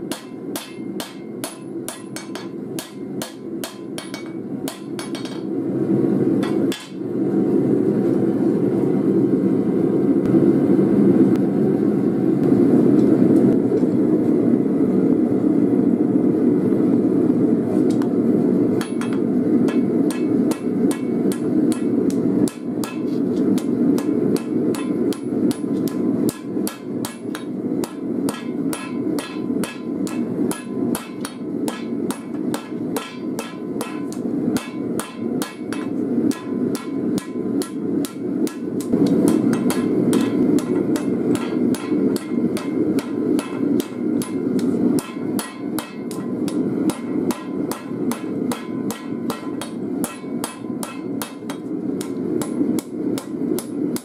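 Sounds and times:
hammer striking hot steel on anvil: 0.0 - 5.6, 6.3 - 7.1, 17.9 - 54.0.

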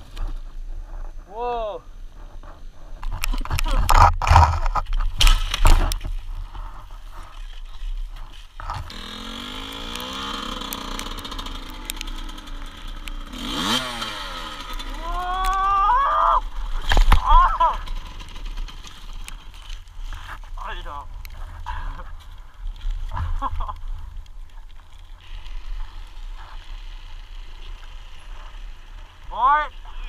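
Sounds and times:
dirt bike crashing clatter: 3.3 - 19.9
dirt bike engine revving: 8.6 - 20.2, 25.1 - 30.0.

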